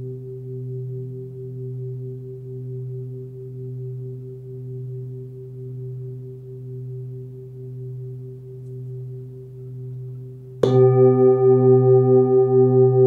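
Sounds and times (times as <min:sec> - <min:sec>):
singing bowl ringing: 0:10.6 - 0:13.0.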